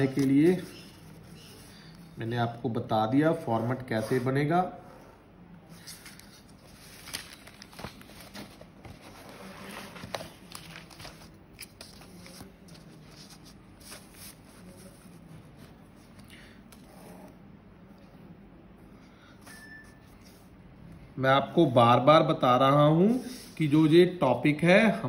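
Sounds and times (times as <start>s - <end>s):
paper rustling and shuffling: 0.0s - 2.2s, 5.7s - 16.9s.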